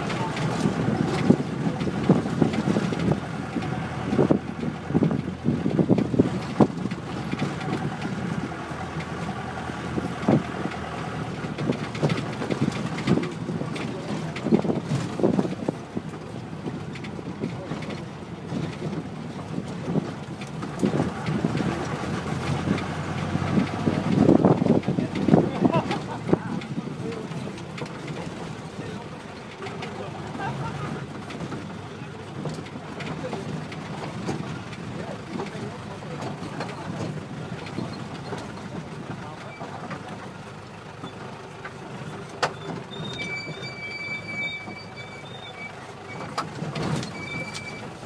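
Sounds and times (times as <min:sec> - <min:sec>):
wind buffeting microphone: 0:00.2 - 0:08.9, 0:18.5 - 0:27.5.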